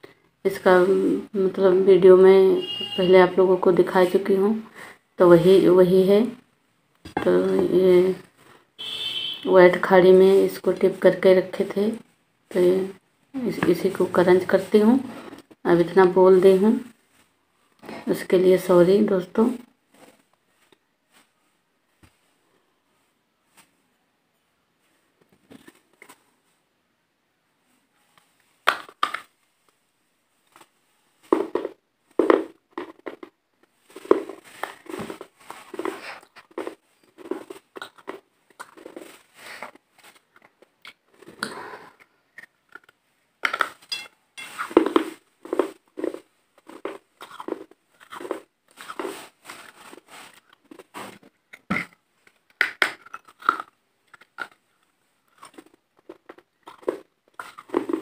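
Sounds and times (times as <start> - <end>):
crunching and chewing chalk: 30.4 - 43.9, 44.6 - 58.0.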